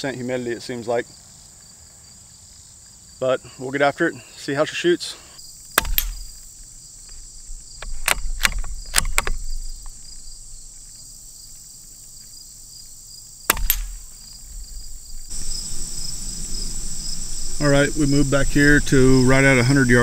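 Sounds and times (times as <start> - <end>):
crickets and insects buzzing: 0.0 - 20.0
suppressed rifle shots: 5.7 - 6.4, 13.4 - 14.8
rifle bolt clicks: 5.8 - 6.4, 7.8 - 9.4, 13.5 - 14.1.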